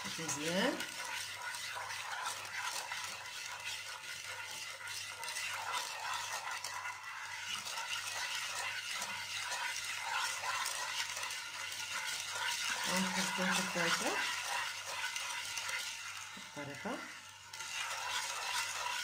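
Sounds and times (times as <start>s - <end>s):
spatula scraping frying pan: 0.0s - 19.0s.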